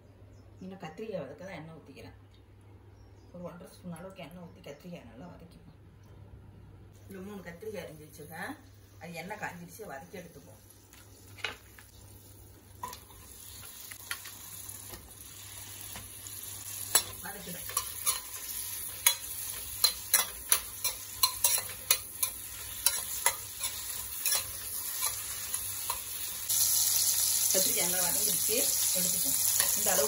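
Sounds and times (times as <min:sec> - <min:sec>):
vegetables sizzling in hot oil: 0:08.2 - 0:30.0
ladle clinking and scraping pan: 0:16.9 - 0:26.2.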